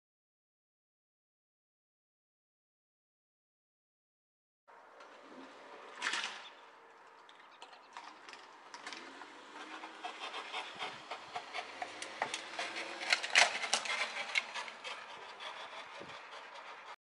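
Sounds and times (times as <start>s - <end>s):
car crash clatters and scrapes: 5.1s - 6.6s, 7.3s - 15.0s.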